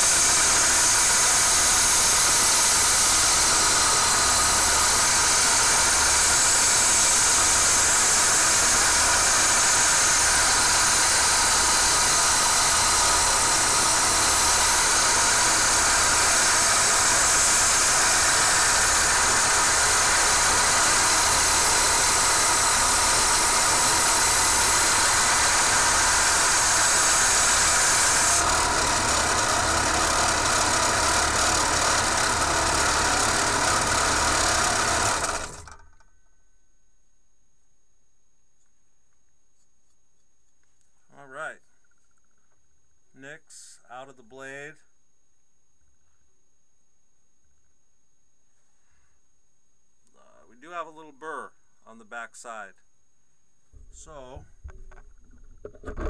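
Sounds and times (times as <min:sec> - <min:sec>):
belt grinder running: 0:00.0 - 0:36.0.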